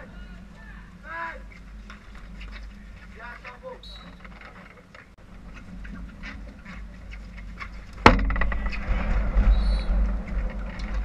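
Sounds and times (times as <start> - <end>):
low rumbling and rustling: 0.0 - 11.0.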